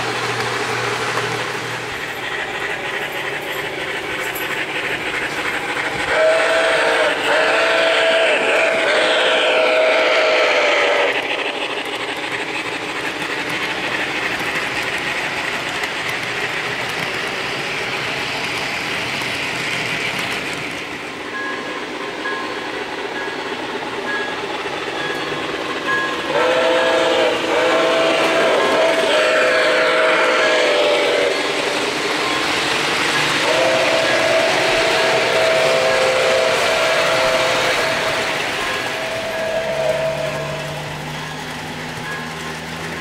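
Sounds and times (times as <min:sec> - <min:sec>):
model train running on track: 0:00.0 - 0:43.0
model train chime whistle: 0:06.1 - 0:11.2, 0:24.1 - 0:32.7, 0:33.3 - 0:43.0.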